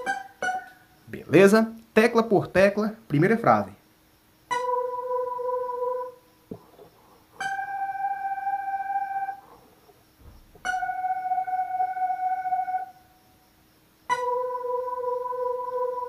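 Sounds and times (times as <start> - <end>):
electronic keyboard single notes: 0.0 - 0.8, 4.5 - 6.2, 7.4 - 9.4, 10.6 - 13.0, 14.1 - 16.0.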